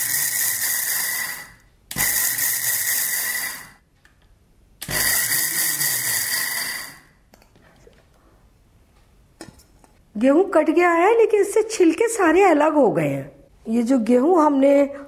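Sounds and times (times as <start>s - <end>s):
mixer grinder whining: 0.0s - 3.8s, 4.8s - 7.1s.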